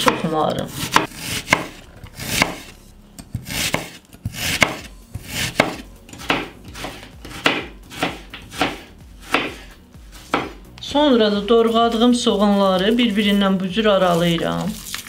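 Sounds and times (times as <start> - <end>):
knife slicing onion: 0.0 - 10.6
knife knocking on wooden board: 10.3 - 10.6.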